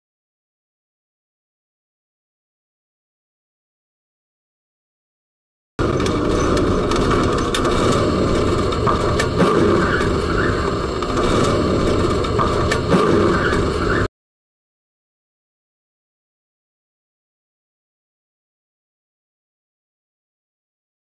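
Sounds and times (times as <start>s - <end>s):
clicks and knocks: 5.8s - 10.3s
tram rumbling on rails: 5.8s - 14.1s.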